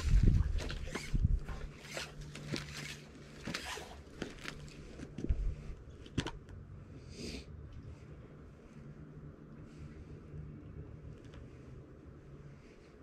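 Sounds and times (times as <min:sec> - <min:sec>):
rope rustling and clicking: 0:00.0 - 0:06.6.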